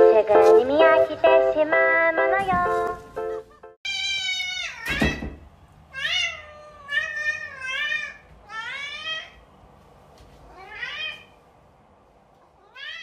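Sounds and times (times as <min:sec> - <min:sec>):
cat meowing: 0:03.8 - 0:05.2, 0:05.9 - 0:09.4, 0:10.5 - 0:11.4, 0:12.6 - 0:13.0.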